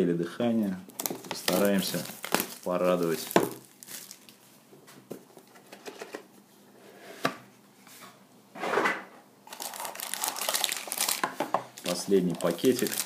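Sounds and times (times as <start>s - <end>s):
packaging rustling and crinkling: 0.9s - 4.5s, 9.5s - 13.0s.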